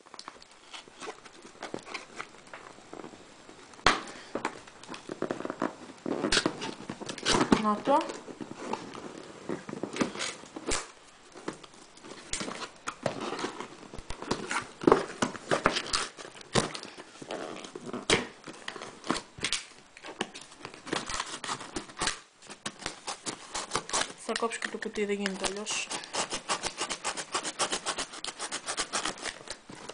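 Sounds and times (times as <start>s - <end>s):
hands picking at packing tape: 3.8s - 29.9s
cardboard box scratching and tearing: 20.9s - 24.4s, 25.3s - 29.6s.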